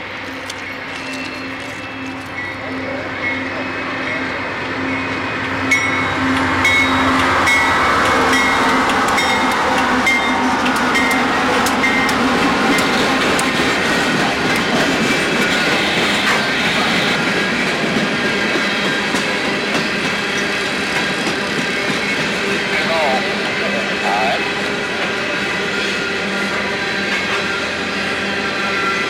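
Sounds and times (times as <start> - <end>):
train wheels clicking over rail joints: 5.4 - 23.7.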